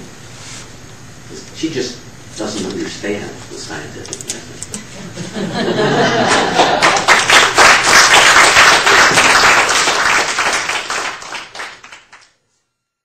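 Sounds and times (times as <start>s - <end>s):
audience applauding: 6.0s - 12.3s.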